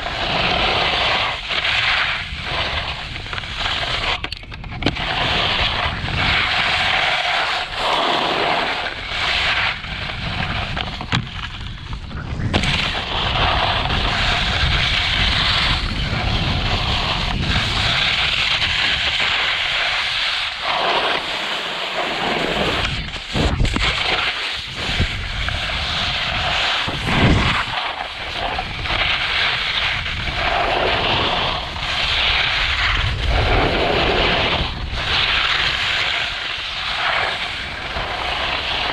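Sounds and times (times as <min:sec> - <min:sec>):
skis scraping over snow: 0:00.0 - 0:38.9
wind on microphone: 0:00.0 - 0:38.9.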